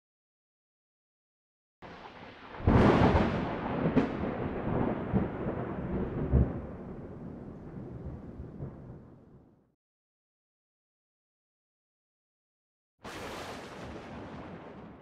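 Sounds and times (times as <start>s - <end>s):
thunder cracking and rumbling: 1.8s - 9.5s, 13.1s - 15.0s.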